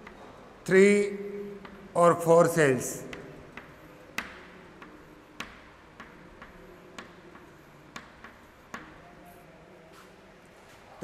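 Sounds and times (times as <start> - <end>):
chalk tapping on chalkboard: 1.6 - 1.9, 3.1 - 9.1.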